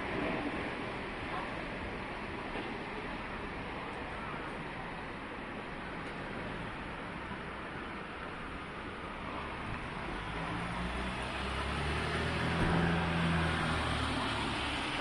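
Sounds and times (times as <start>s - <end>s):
street traffic noise: 0.0s - 15.0s
vehicle engine passing: 10.1s - 15.0s.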